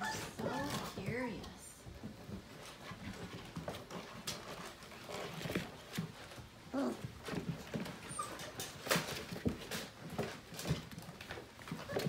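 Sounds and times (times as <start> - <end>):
puppy whine: 0.0 - 1.0, 6.7 - 8.9
paws scrabbling on hard plastic: 0.0 - 12.0.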